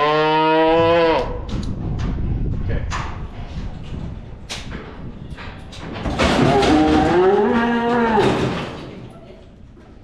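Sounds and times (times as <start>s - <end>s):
cattle mooing: 0.0s - 1.3s, 6.4s - 8.4s.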